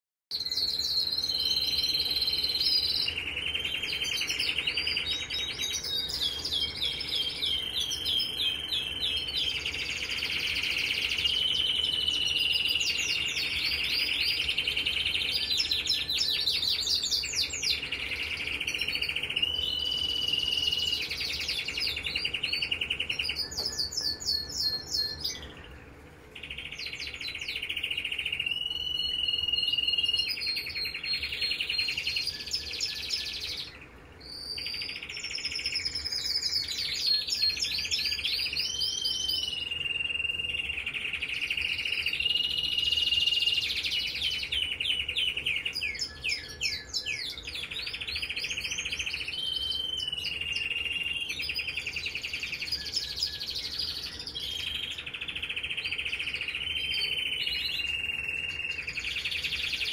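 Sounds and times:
canary singing trills: 0:00.3 - 0:59.9.

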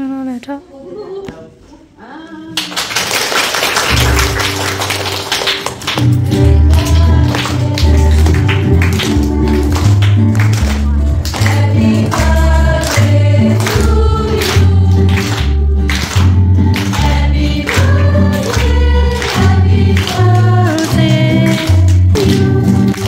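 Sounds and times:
hands clapping: 0:02.6 - 0:23.0
amplified backing music with bass beat: 0:06.0 - 0:12.5
group singing: 0:06.4 - 0:09.6, 0:11.2 - 0:23.0.

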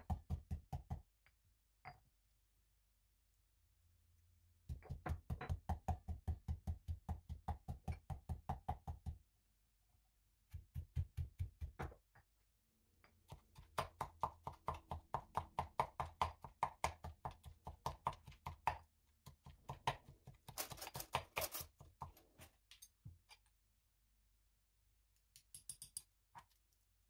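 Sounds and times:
stone pestle pounding in mortar: 0:04.7 - 0:09.2, 0:13.5 - 0:18.8.

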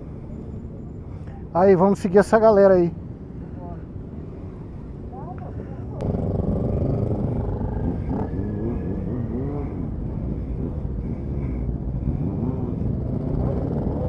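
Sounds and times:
motorcycle engines revving: 0:06.0 - 0:14.0.

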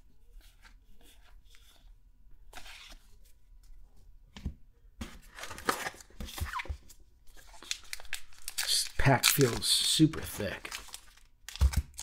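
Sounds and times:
wrapper crinkling and tearing: 0:07.3 - 0:12.0.

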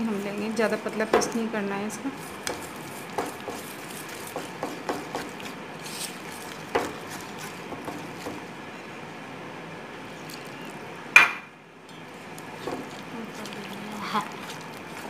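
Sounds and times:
whisk scraping metal bowl: 0:00.0 - 0:08.5, 0:12.5 - 0:15.0.

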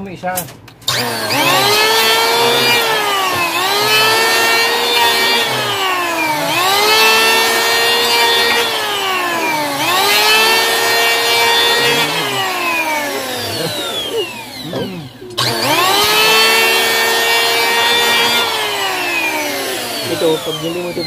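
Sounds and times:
electric hand planer cutting wood: 0:00.9 - 0:21.0.

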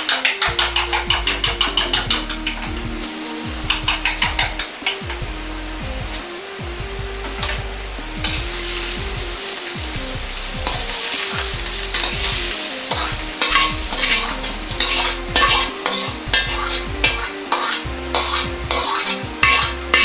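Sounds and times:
food sizzling in oil: 0:00.0 - 0:20.0
metal ladle scraping a wok: 0:10.6 - 0:20.0.

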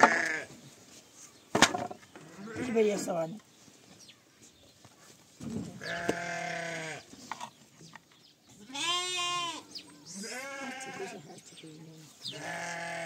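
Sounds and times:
lamb bleating: 0:00.0 - 0:00.5, 0:05.8 - 0:07.0, 0:08.6 - 0:11.2, 0:12.3 - 0:13.0.

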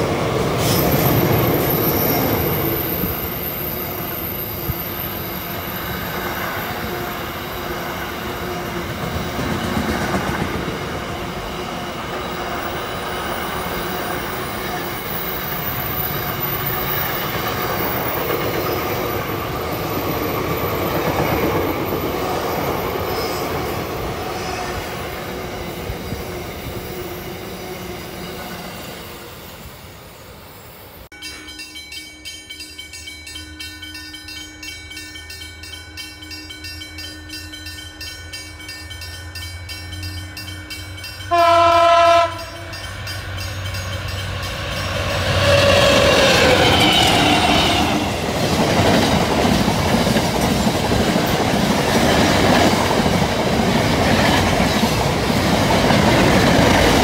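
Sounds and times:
diesel locomotive drone: 0:00.0 - 0:57.0
freight train wheels rumbling: 0:00.0 - 0:57.0
multi-tone train horn: 0:41.2 - 0:43.0, 0:44.9 - 0:48.2.

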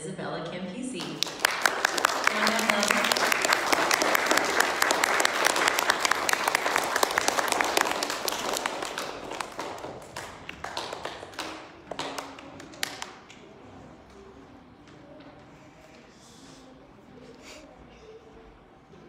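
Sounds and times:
audience applauding: 0:01.0 - 0:13.2.

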